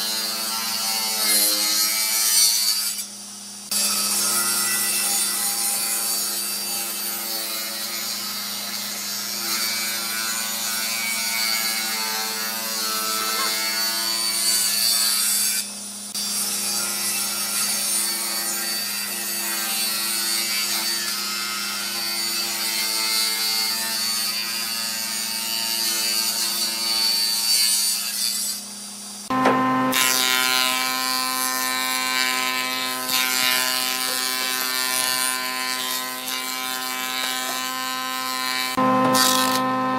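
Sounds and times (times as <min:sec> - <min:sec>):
table saw cutting boards: 0:00.0 - 0:39.9
saw motor humming: 0:03.7 - 0:24.6, 0:29.3 - 0:39.9
thickness planer running: 0:08.1 - 0:17.6, 0:29.3 - 0:39.9.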